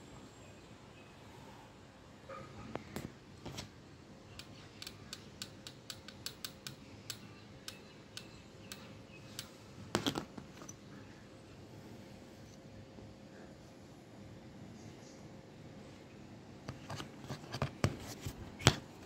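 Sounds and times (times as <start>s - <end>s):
screwdriver tapping metal: 4.4s - 10.8s
plastic housing clatter: 9.9s - 10.8s.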